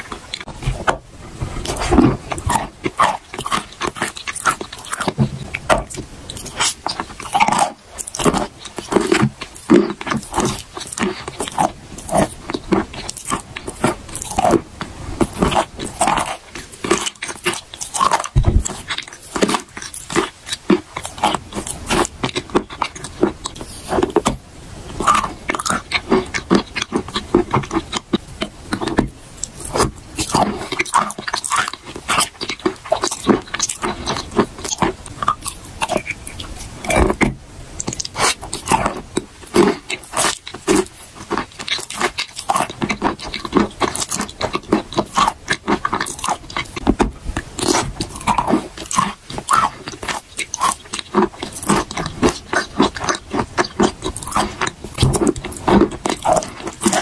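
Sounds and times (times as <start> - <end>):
chewing wet crunches: 0.0 - 57.0
sticky mouth clicks: 15.2 - 57.0.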